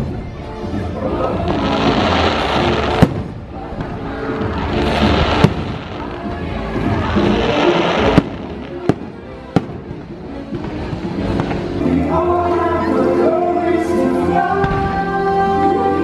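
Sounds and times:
music: 0:00.0 - 0:16.0
fireworks bursting: 0:01.2 - 0:12.2.

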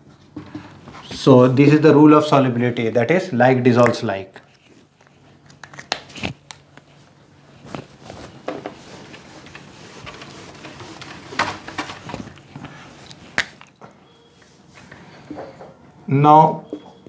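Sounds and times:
cloth wiping whiteboard: 0:07.6 - 0:12.2.

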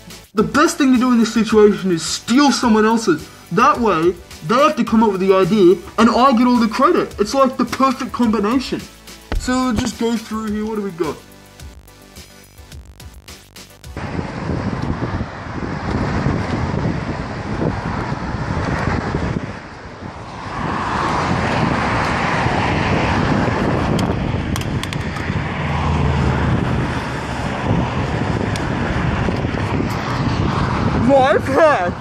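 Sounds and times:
passing road traffic: 0:01.0 - 0:12.6, 0:13.4 - 0:32.0
low engine hum: 0:14.0 - 0:32.0
wind on microphone: 0:14.0 - 0:32.0.

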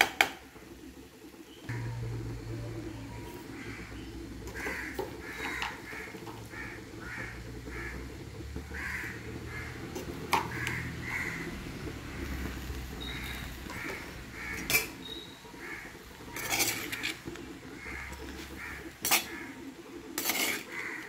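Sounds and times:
low steady hum: 0:01.4 - 0:08.8
crows cawing: 0:03.5 - 0:12.4, 0:13.0 - 0:19.7, 0:20.4 - 0:21.0.

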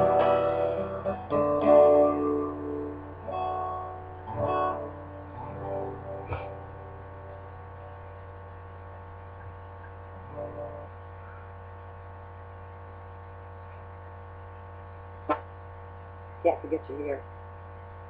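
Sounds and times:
guitar notes: 0:00.0 - 0:11.5
electrical mains hum: 0:00.0 - 0:18.0.

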